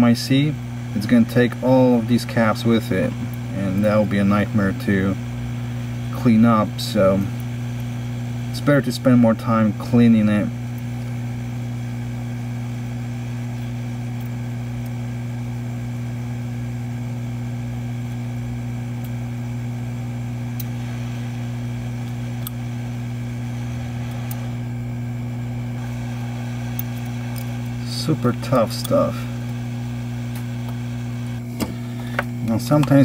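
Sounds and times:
hot air blower humming: 0.0 - 33.0
blade scraping ticks: 1.0 - 5.2, 23.8 - 24.6, 26.6 - 29.6.

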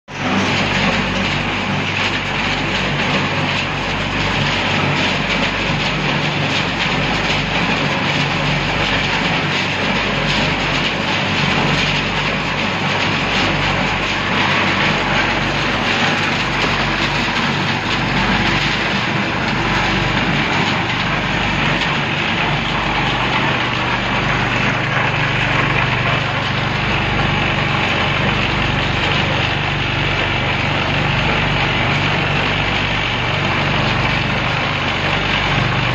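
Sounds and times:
machinery running: 0.1 - 35.9.

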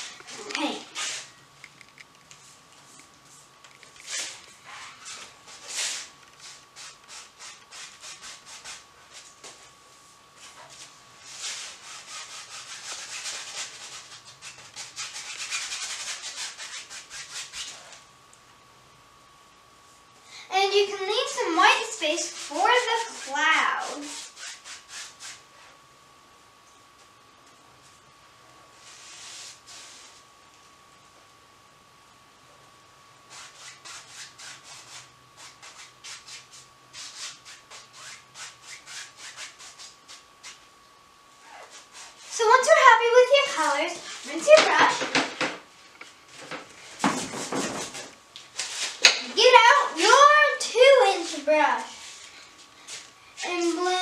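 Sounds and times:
paintbrush scrubbing canvas: 4.0 - 18.0, 21.7 - 25.8, 28.8 - 30.2, 33.3 - 40.7, 41.5 - 44.9, 46.8 - 54.0.

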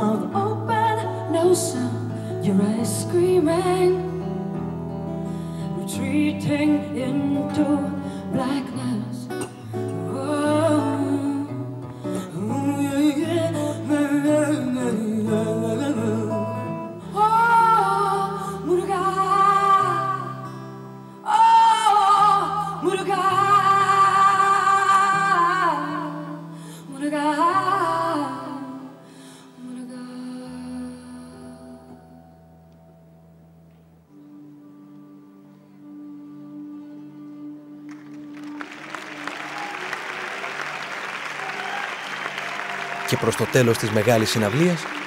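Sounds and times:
woman singing: 0.0 - 4.7, 5.6 - 32.5
plucked acoustic guitar: 0.0 - 26.6.

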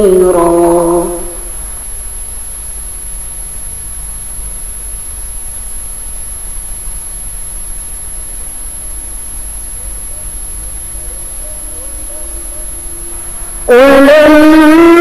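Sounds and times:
faint high-pitched whine: 0.0 - 15.0
steady background hiss: 0.0 - 15.0.

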